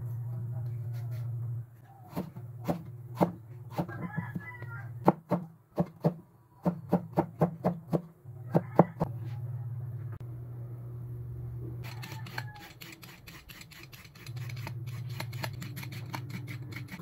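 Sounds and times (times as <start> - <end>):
knife chopping on wooden board: 2.1 - 3.9.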